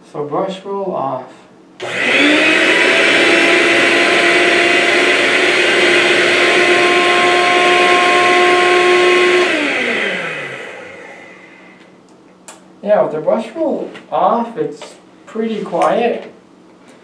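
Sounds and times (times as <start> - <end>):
vacuum cleaner motor whine: 1.8 - 11.9
vacuum motor winding down: 1.8 - 11.9.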